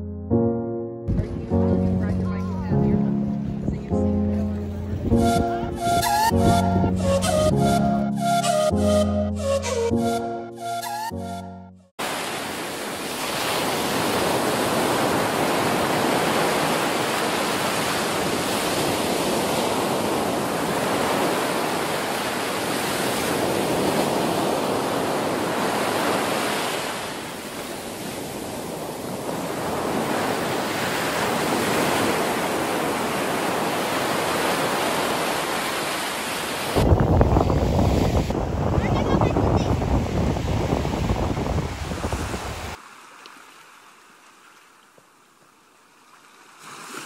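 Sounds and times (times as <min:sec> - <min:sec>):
ocean surf breaking on beach: 0:12.0 - 0:44.5.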